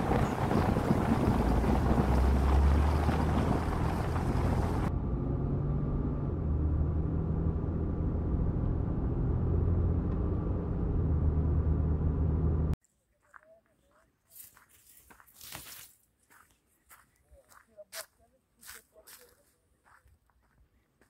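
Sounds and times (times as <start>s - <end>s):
wind buffeting microphone: 0.0s - 4.9s
vehicle engine and road noise: 0.0s - 12.8s.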